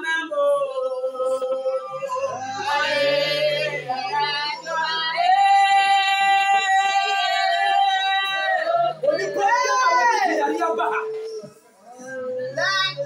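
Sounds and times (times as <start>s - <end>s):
lower voice singing: 0.0s - 10.0s.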